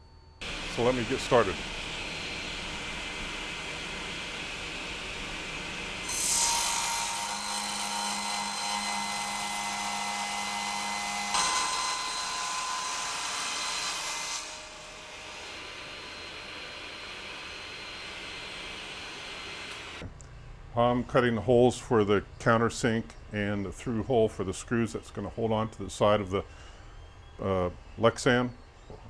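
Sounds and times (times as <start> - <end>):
table saw cutting plastic sheet: 0.4 - 20.0.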